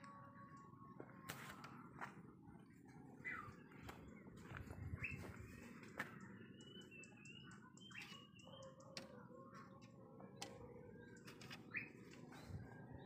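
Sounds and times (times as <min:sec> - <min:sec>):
faint bird chirps: 0:02.6 - 0:13.0.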